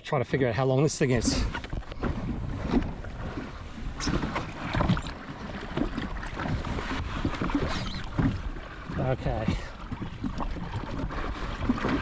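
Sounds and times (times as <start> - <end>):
water lapping against hull: 0.0 - 12.0.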